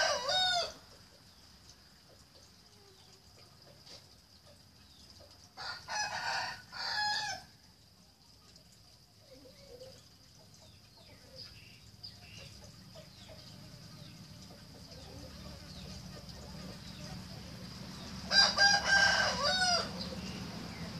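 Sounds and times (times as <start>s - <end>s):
rooster crowing: 0.0s - 0.8s, 5.6s - 7.5s, 18.3s - 20.4s.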